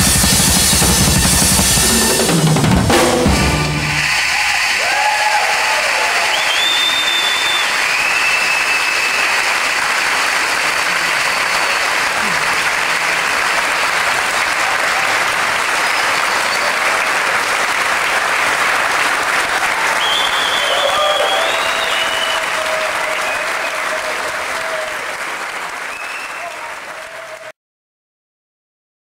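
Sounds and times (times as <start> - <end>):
audience applauding: 1.9 - 27.6
audience whistling: 3.6 - 17.7, 19.3 - 27.5.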